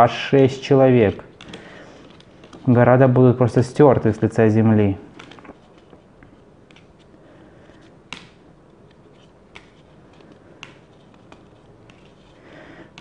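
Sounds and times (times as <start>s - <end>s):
cards snapping off a deck: 8.1s - 8.4s, 10.6s - 12.0s.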